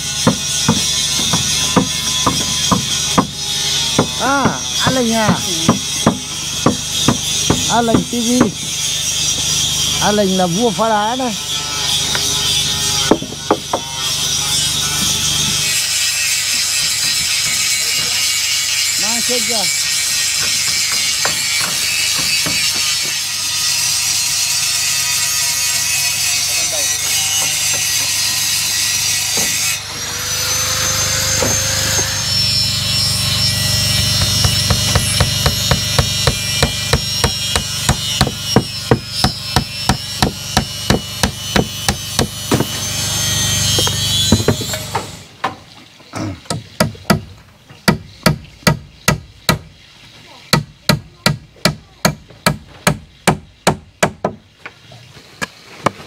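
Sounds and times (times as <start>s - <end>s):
hammer striking wood: 0.2s - 8.6s, 13.0s - 14.0s, 20.4s - 23.1s, 34.0s - 42.8s, 43.7s - 45.1s, 46.5s - 49.7s, 50.5s - 54.4s.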